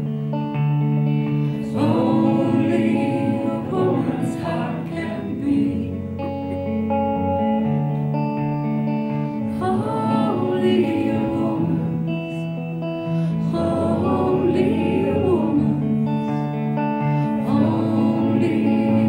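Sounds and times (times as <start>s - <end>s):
guitar chords ringing: 0.0s - 19.0s
person singing: 1.4s - 7.4s, 9.1s - 19.0s.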